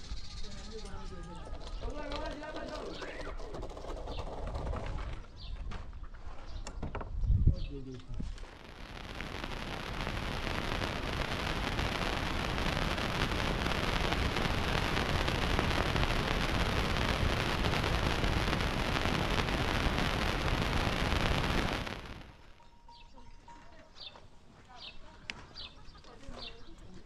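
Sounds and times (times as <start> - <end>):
steady rushing noise: 8.4 - 22.5.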